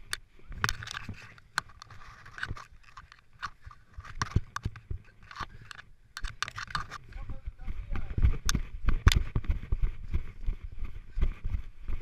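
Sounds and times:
body scraping over dirt and grit: 0.0s - 5.6s.

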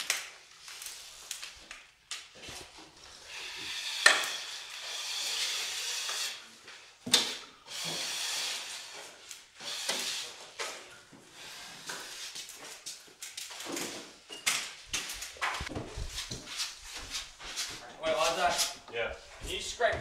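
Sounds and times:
drywall tool scraping compound: 2.4s - 13.0s, 15.0s - 20.0s.

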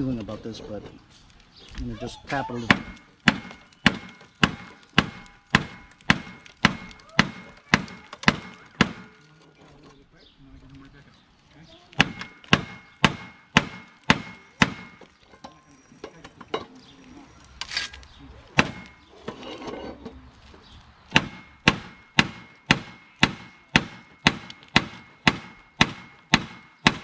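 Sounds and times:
hammer striking metal: 2.7s - 9.2s, 12.0s - 15.6s, 21.1s - 27.0s.

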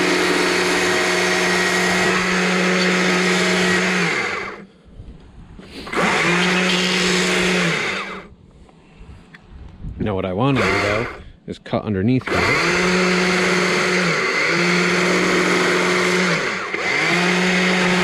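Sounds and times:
chainsaw cutting wood: 0.0s - 4.7s, 5.7s - 8.3s, 10.4s - 11.2s, 12.2s - 18.0s.

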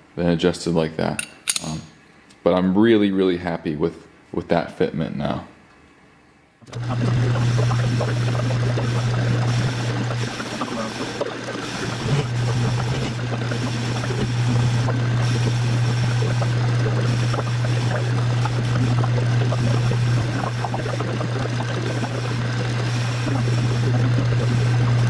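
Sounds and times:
lathe motor hum: 6.7s - 25.0s.

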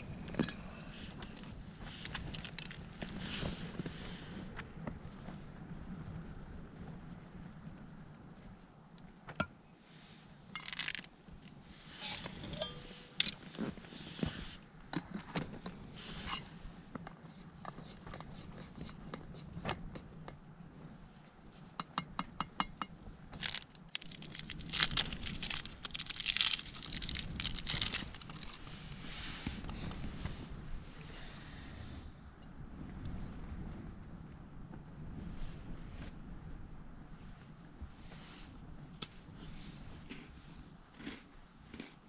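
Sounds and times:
rustling and crinkling: 0.2s - 9.4s, 10.6s - 21.4s, 23.3s - 31.1s.

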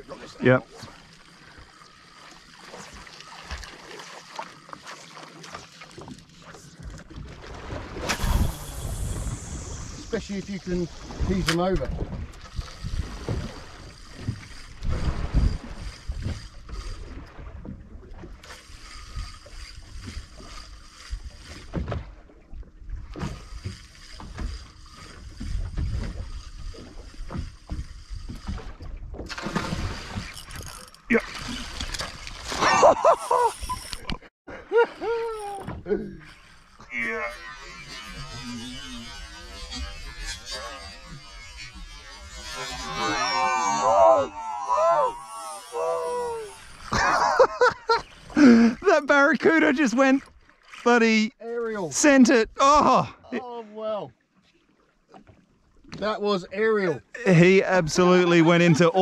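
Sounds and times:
small waves lapping against hull: 0.0s - 59.0s
small splashes and knocks: 0.8s - 8.4s, 21.2s - 32.8s
wind rumble on microphone: 8.2s - 18.0s.

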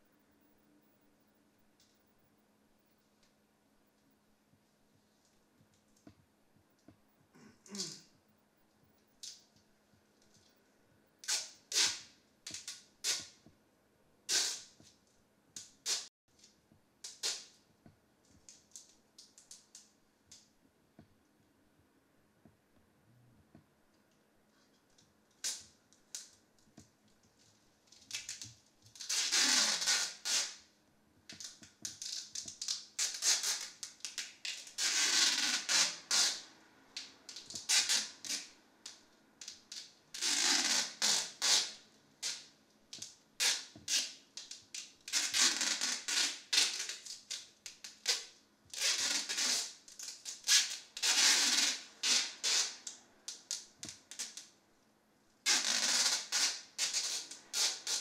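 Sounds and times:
tape crackles and clicks: 0.0s - 13.6s, 14.3s - 21.4s, 22.4s - 54.6s
adhesive tape ripping off roll: 7.4s - 8.1s, 11.2s - 13.5s, 14.3s - 15.0s, 15.6s - 17.6s, 25.4s - 26.4s, 27.9s - 30.7s, 31.3s - 54.6s, 55.4s - 58.0s.

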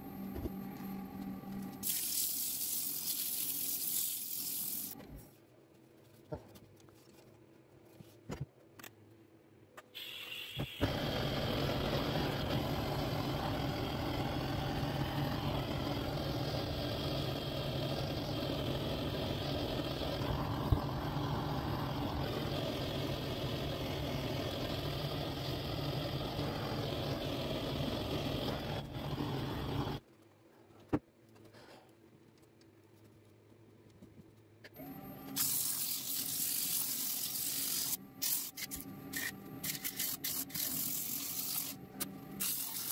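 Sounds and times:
blowtorch flame hissing: 10.0s - 30.0s, 42.4s - 42.9s.

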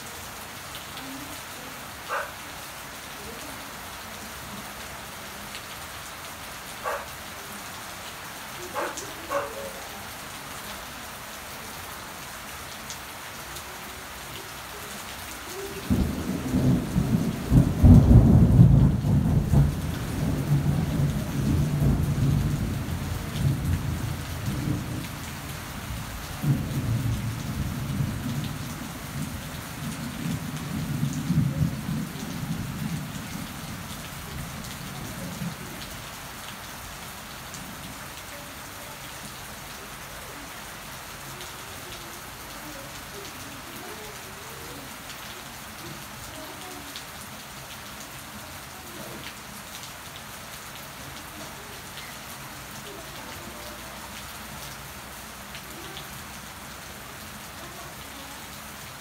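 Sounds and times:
rain falling on plants: 0.0s - 59.0s
thunder rolling: 15.9s - 25.0s.

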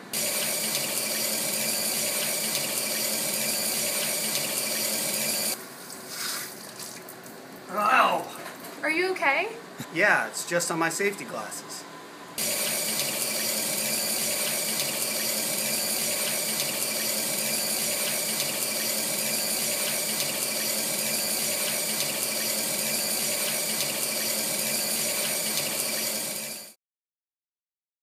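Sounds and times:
eyewash water jets spraying: 0.0s - 7.0s, 12.4s - 26.7s.

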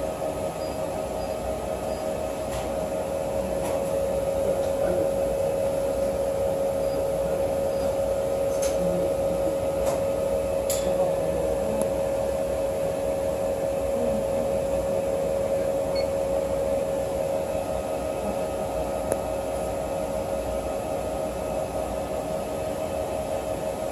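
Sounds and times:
machine hum and whir: 0.0s - 23.9s.

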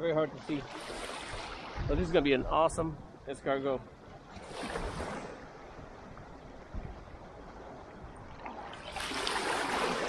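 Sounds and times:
seawater lapping over rocks: 4.2s - 10.0s.

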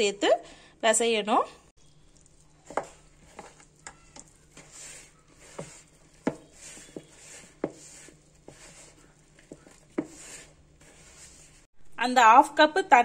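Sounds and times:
hand kneading dough: 1.8s - 11.7s.

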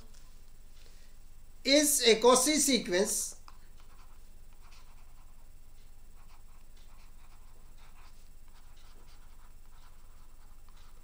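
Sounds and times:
low electrical hum: 0.0s - 11.0s
stylus scratching on tablet: 3.4s - 11.0s.

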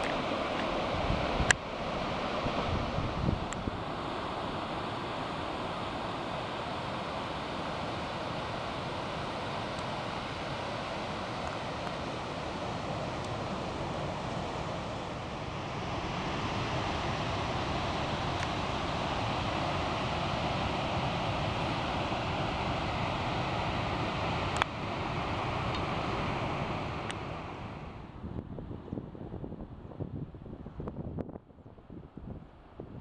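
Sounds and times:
wind buffeting microphone: 0.0s - 4.9s, 12.8s - 33.0s
surf breaking on beach: 0.0s - 28.1s.

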